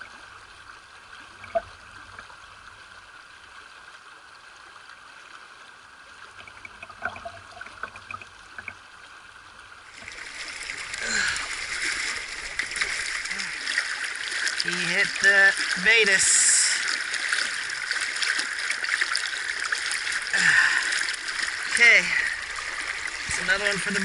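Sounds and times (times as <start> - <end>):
stream running: 0.0 - 24.0
water splashing: 6.3 - 8.8, 9.8 - 24.0.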